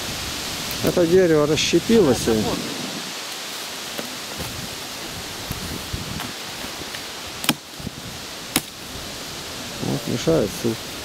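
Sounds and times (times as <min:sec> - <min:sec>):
steady background hiss: 0:00.0 - 0:11.0
axe chopping wood: 0:07.4 - 0:07.7, 0:08.5 - 0:08.8.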